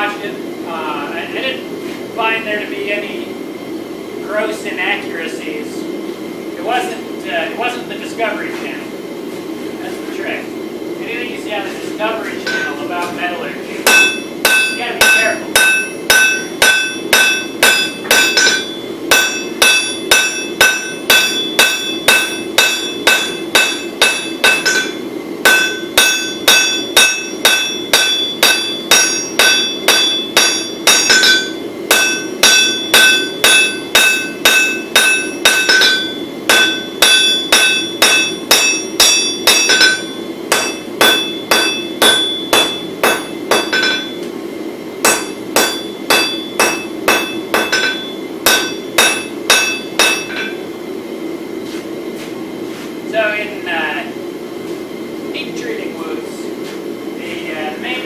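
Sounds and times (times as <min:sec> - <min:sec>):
steady low hum: 0:00.0 - 0:58.0
hammer striking steel on anvil: 0:12.4 - 0:12.8, 0:13.8 - 0:44.3, 0:45.0 - 0:50.6.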